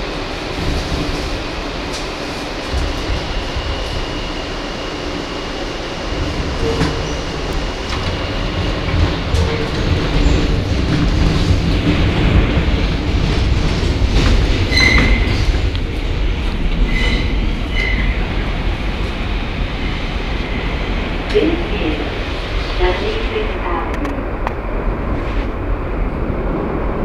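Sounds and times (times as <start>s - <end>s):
subway train rumbling in tunnel: 0.0s - 27.0s.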